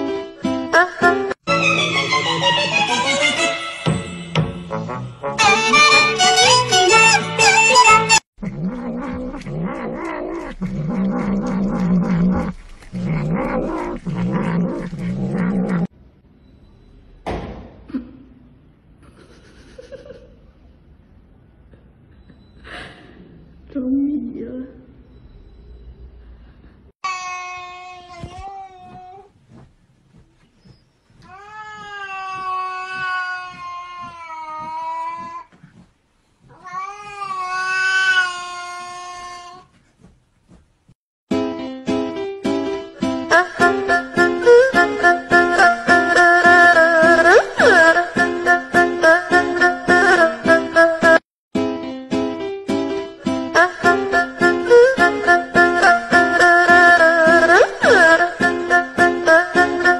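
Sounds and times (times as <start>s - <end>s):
cat growling: 8.4s - 15.9s.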